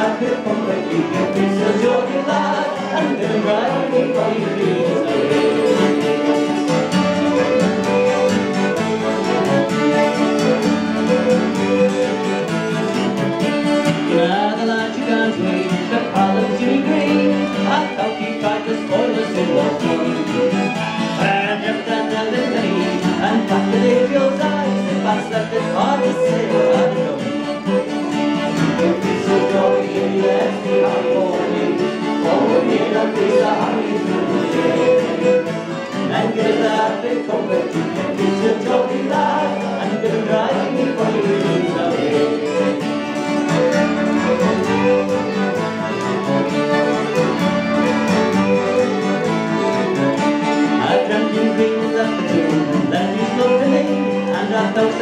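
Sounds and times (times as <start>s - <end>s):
fiddle: 0.0s - 55.0s
piano accordion: 0.0s - 55.0s
strummed acoustic guitar: 0.0s - 55.0s.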